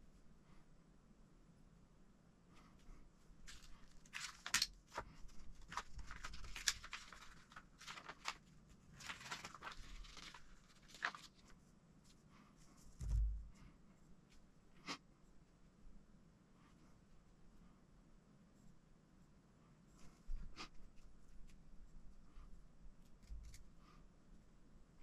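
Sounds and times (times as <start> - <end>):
paper pages turning: 3.5 - 12.2
dull thump: 13.0 - 13.5.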